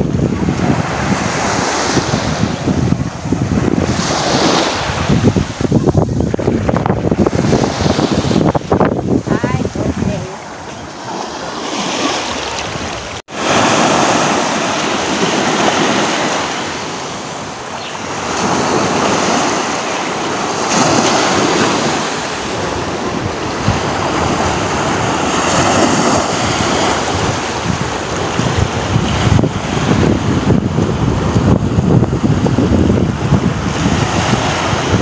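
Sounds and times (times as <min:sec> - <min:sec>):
small waves breaking on beach: 0:00.0 - 0:35.0
wind on microphone: 0:00.0 - 0:35.0.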